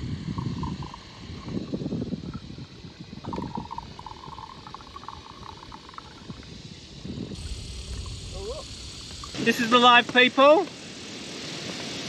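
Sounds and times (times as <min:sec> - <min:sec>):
liquid glugging from bottle: 0:00.0 - 0:09.4
boat noise: 0:00.0 - 0:10.6
wind rumble: 0:00.0 - 0:11.4.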